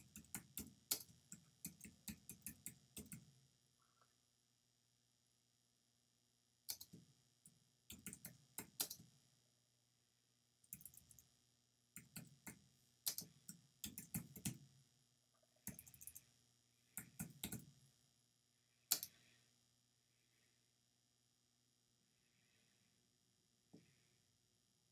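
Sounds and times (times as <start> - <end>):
keyboard typing: 0.0 - 3.2, 7.9 - 9.0, 10.7 - 11.2, 12.0 - 14.6, 15.6 - 16.3, 17.0 - 17.7.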